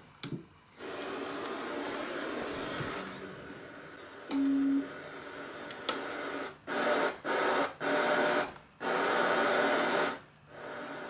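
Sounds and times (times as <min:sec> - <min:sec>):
radio static hiss: 0:00.8 - 0:11.0.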